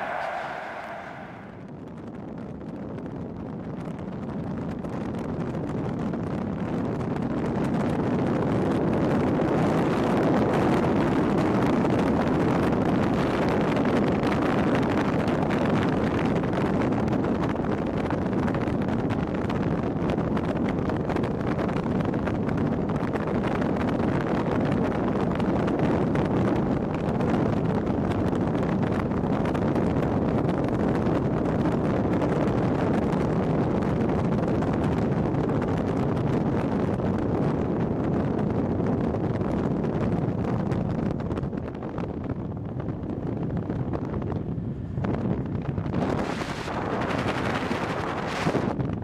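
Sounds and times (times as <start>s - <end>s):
car driving at speed: 0.0s - 1.7s
wind rushing: 0.0s - 1.7s, 42.1s - 49.0s
wind buffeting microphone: 0.0s - 49.0s.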